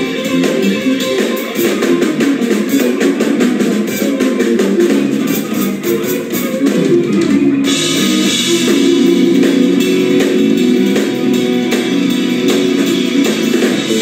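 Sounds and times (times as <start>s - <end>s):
bass guitar: 0.0s - 14.0s
drum kit: 0.0s - 14.0s
fast electric guitar lines: 0.0s - 14.0s.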